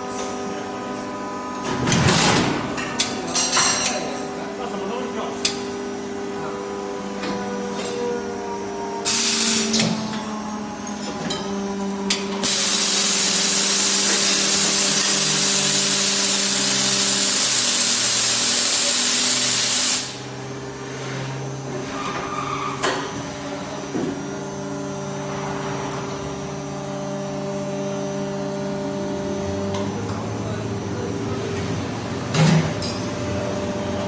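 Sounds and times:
machine humming: 4.2s - 20.9s
sprayer hissing loudly: 12.4s - 20.2s.

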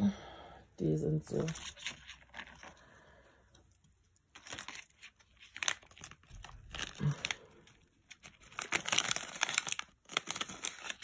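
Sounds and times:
plastic bag crinkling: 1.4s - 2.9s, 4.2s - 11.0s.

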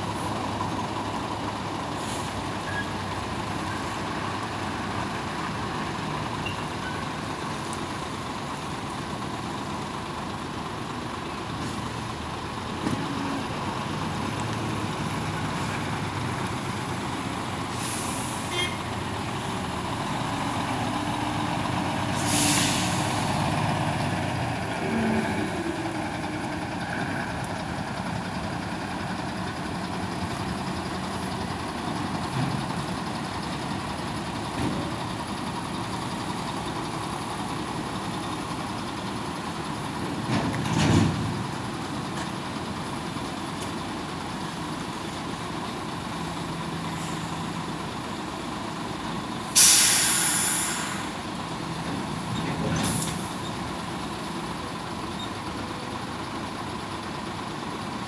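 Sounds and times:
diesel trucks running: 0.0s - 58.0s
air brake hisses: 17.7s - 18.5s, 22.2s - 23.1s, 49.6s - 51.2s.

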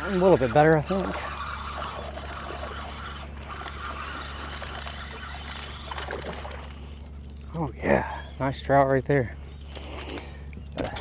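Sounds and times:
water splashing: 0.0s - 6.9s
fishing reel clicks: 0.0s - 7.1s
steady low hum: 0.0s - 11.0s.

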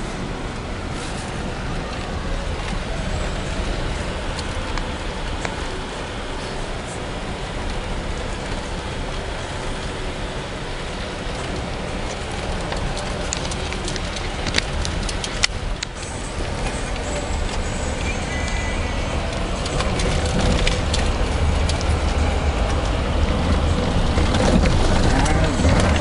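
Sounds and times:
moving vehicle rumble: 0.0s - 26.0s.

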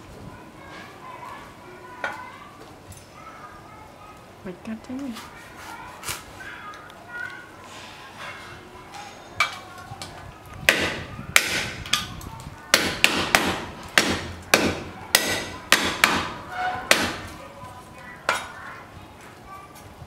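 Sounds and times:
cleaver chopping on wooden block: 12.7s - 17.2s.

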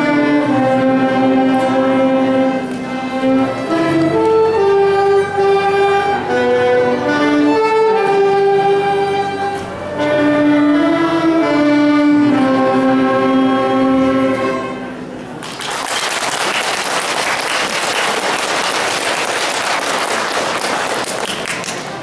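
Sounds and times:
woodwind ensemble with accordion: 0.0s - 15.3s
audience applause: 15.4s - 22.0s.

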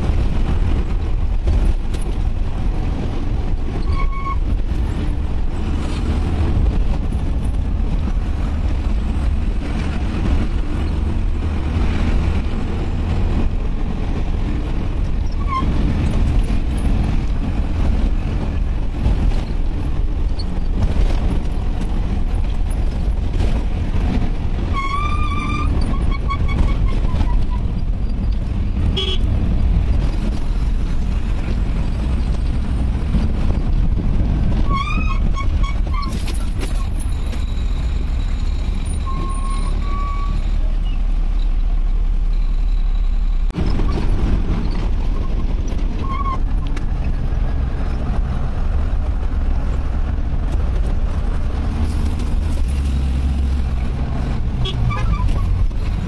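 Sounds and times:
vehicle engine and road noise: 0.0s - 56.0s
horn toots: 28.9s - 29.3s, 54.6s - 55.4s.

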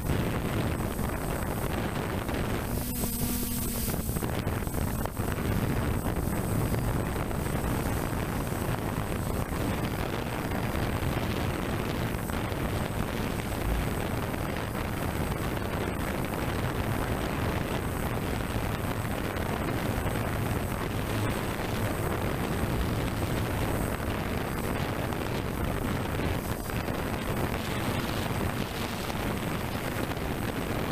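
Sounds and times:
wind buffeting microphone: 0.0s - 30.9s
drone rotors rushing: 0.4s - 30.9s.

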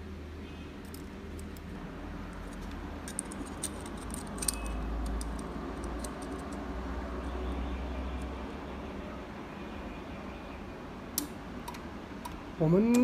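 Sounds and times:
metallic clicks and taps: 2.4s - 6.7s.

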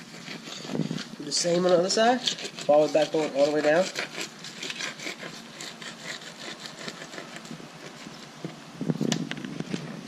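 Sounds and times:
knife clicking and scraping on bones: 0.1s - 8.0s.

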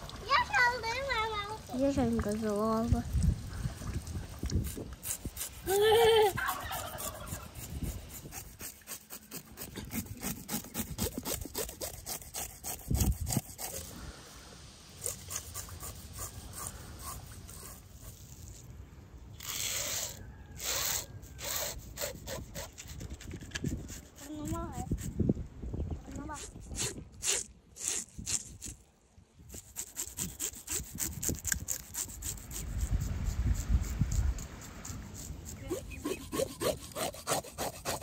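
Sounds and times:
knife scraping fish scales: 4.6s - 14.0s, 15.0s - 18.7s, 19.4s - 25.1s, 26.4s - 28.8s, 29.5s - 38.0s.

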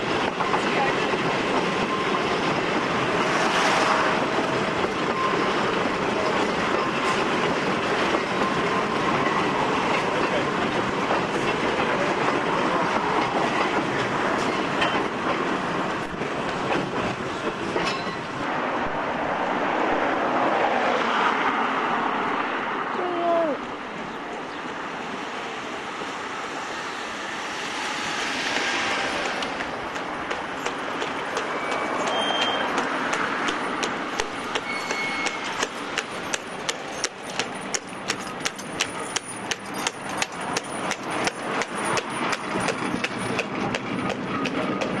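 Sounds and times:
tram rumbling on rails: 0.0s - 45.0s
wheels clicking over rail joints: 28.5s - 45.0s
high squeaks: 31.4s - 32.9s, 34.4s - 40.6s.

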